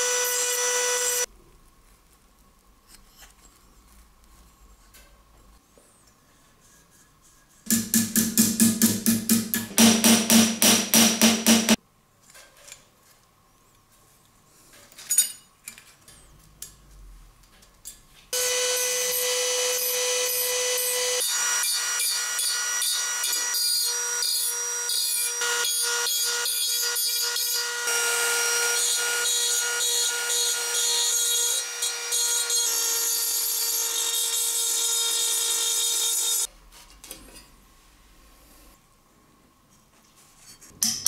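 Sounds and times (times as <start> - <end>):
rotary tool grinding metal: 18.4 - 36.5.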